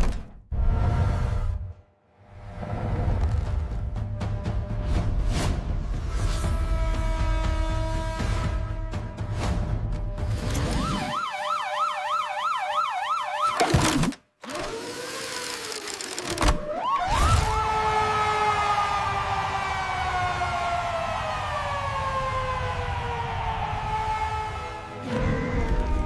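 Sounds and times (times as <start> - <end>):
warbling siren wail: 10.6 - 14.0, 16.6 - 26.0
siren tone falling in pitch: 10.8 - 13.7.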